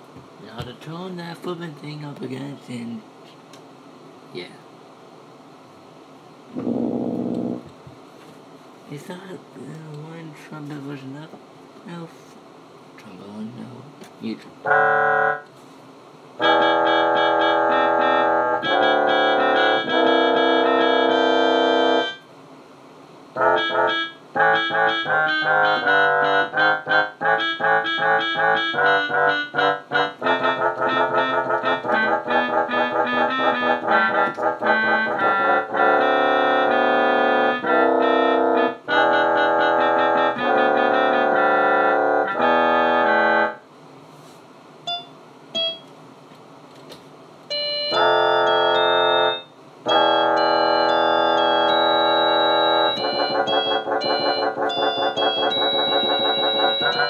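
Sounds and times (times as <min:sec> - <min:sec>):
electronic keyboard trumpet notes: 0:06.6 - 0:07.6, 0:14.6 - 0:15.5, 0:16.4 - 0:22.3, 0:23.4 - 0:43.6, 0:47.5 - 0:57.0.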